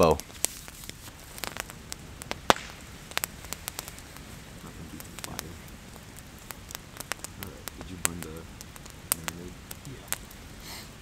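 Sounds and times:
campfire crackling and popping: 0.0s - 11.0s.

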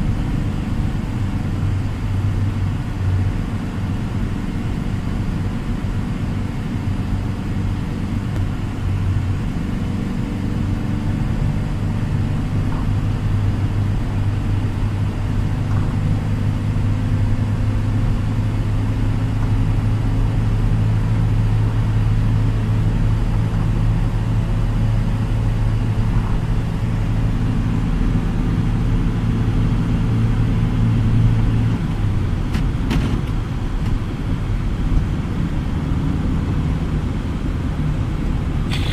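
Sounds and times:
engine and tyre drone: 0.0s - 38.9s
road hiss: 38.4s - 38.9s.

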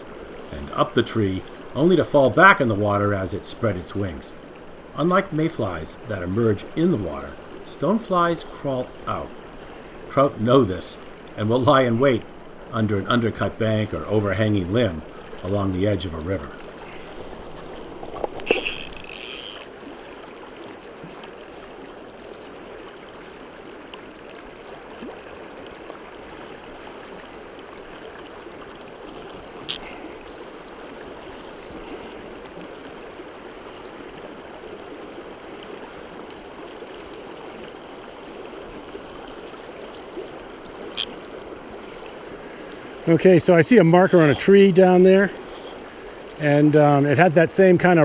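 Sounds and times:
river flowing over gravel: 0.0s - 48.0s
fly line pulled off reel: 17.4s - 19.7s, 29.6s - 30.0s, 40.9s - 41.2s.

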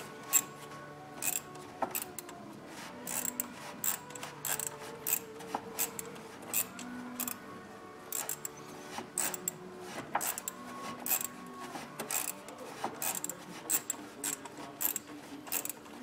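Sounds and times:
socket ratchet clicking: 0.3s - 0.5s, 1.2s - 2.3s, 3.1s - 7.4s, 8.1s - 8.5s, 9.2s - 9.6s, 10.2s - 11.3s, 12.1s - 12.4s, 13.0s - 15.8s.

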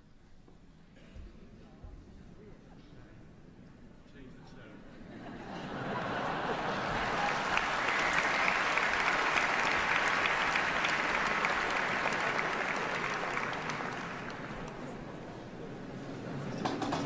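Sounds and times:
audience applauding: 6.0s - 15.4s.

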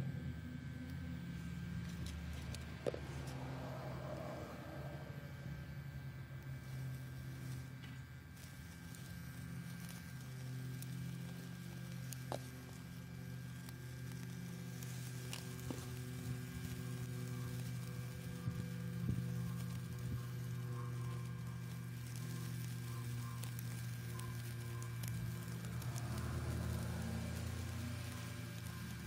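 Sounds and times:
blower fan humming: 0.0s - 29.0s
burning wood crackling: 0.0s - 29.0s.

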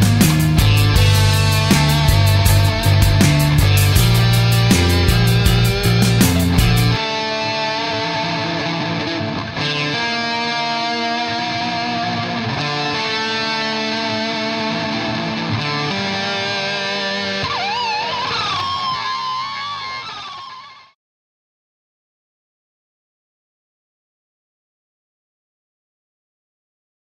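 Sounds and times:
guitar music: 0.0s - 20.9s.

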